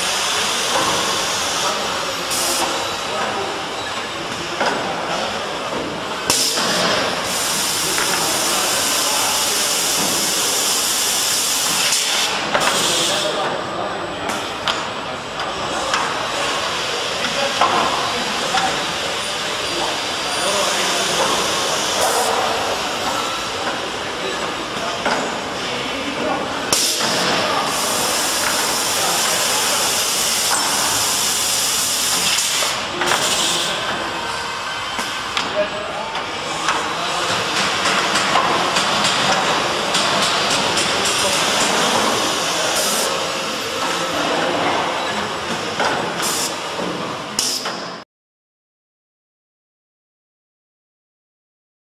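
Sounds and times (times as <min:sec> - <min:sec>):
machine hiss of tools and air: 0:00.0 - 0:04.4, 0:06.3 - 0:13.5, 0:15.9 - 0:24.1, 0:26.6 - 0:35.6, 0:36.3 - 0:44.2, 0:45.0 - 0:48.0
loud steady hiss: 0:26.7 - 0:33.8.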